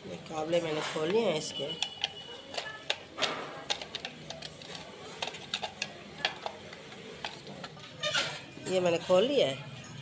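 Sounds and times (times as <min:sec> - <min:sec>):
plastic casing handled: 0:01.7 - 0:08.2.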